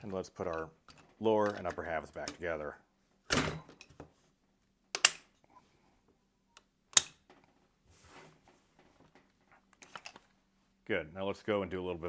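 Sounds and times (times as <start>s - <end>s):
metal clicks and knocks: 0.0s - 2.5s
soft rustle: 7.6s - 10.8s.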